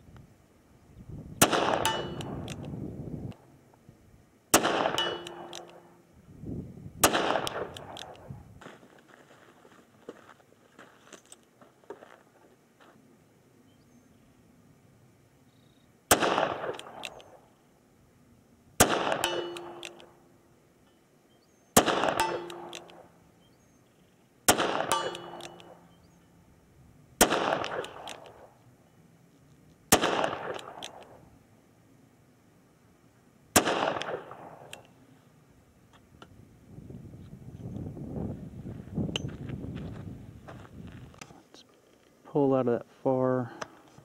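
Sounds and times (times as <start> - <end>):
revolver shots echoing: 1.4 - 2.6, 4.6 - 5.9, 18.8 - 20.1, 21.8 - 23.1, 24.5 - 26.0, 27.2 - 28.5
steel target ringing: 1.5 - 2.4, 4.8 - 6.0, 19.0 - 20.3, 22.0 - 23.0, 24.6 - 26.0.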